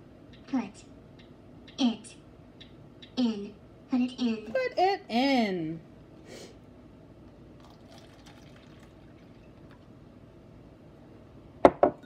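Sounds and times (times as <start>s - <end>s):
water trickling into cup: 7.6s - 9.9s.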